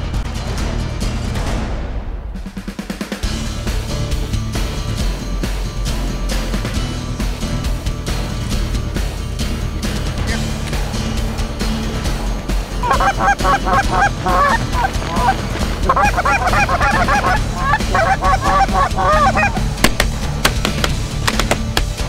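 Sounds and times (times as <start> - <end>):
geese honking: 12.7 - 22.0.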